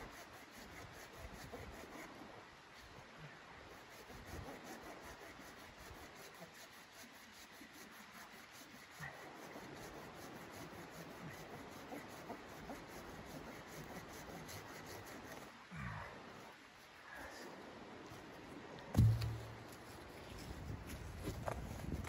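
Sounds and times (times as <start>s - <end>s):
blade scraping firewood: 3.7s - 15.5s.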